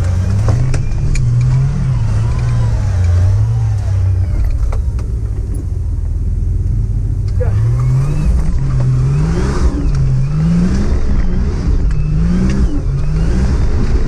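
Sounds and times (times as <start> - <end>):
truck engine under load: 0.0 - 14.0.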